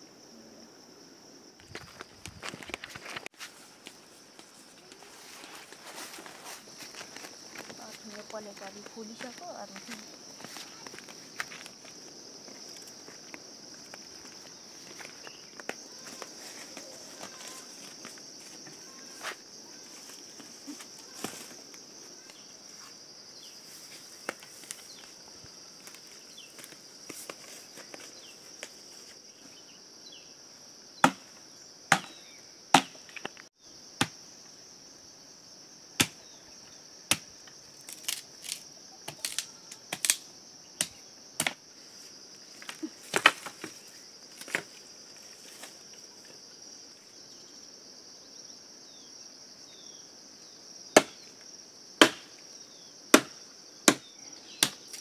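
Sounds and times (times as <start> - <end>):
dry sticks cracking: 37.8 - 41.6.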